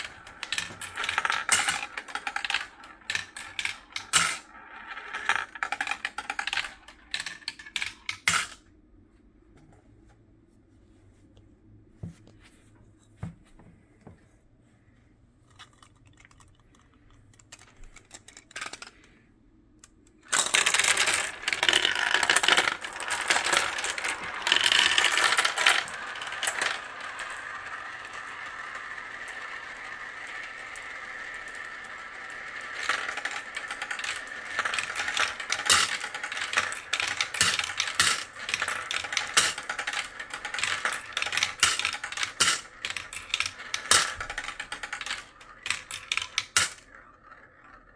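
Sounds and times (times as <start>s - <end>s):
marbles rolling down plastic tubes: 0.0s - 8.6s, 15.5s - 19.2s, 20.2s - 47.9s
glass marbles clattering: 20.3s - 27.8s, 32.8s - 47.1s.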